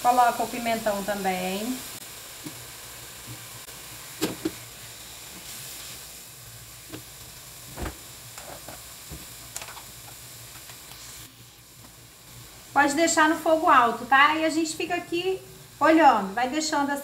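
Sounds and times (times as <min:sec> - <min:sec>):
food frying in oil: 0:00.0 - 0:17.0
dull thump: 0:07.7 - 0:08.0.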